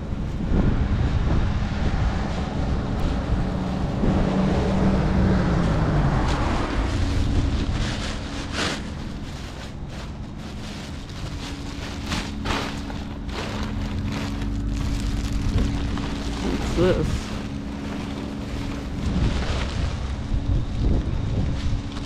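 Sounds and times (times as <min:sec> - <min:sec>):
vehicle engine running: 0:00.0 - 0:22.0
wind buffeting microphone: 0:00.0 - 0:22.0.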